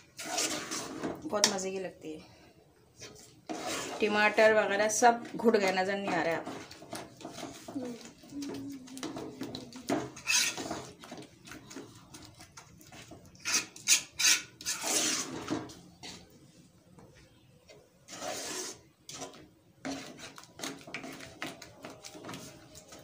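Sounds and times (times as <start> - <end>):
metal spoon scraping a metal pot: 0.0 - 1.2, 3.1 - 11.8, 13.4 - 15.6, 18.1 - 22.4.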